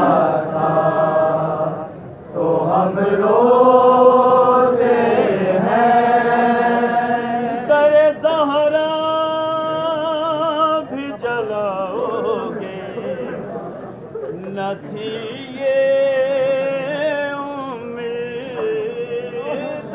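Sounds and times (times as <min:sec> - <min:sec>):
man singing lament: 0:07.6 - 0:13.4, 0:14.4 - 0:19.9.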